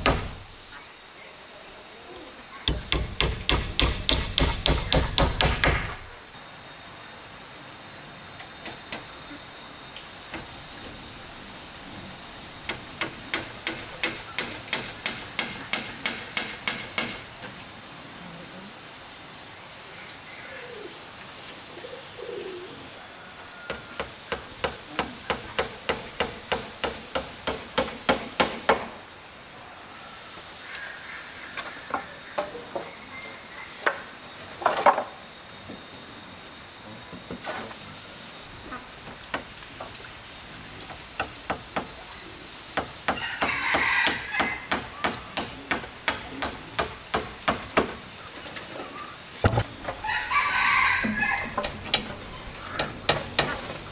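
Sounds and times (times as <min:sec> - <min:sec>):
hammer driving nails into wood: 0:02.7 - 0:06.0, 0:12.7 - 0:17.2, 0:24.0 - 0:28.9.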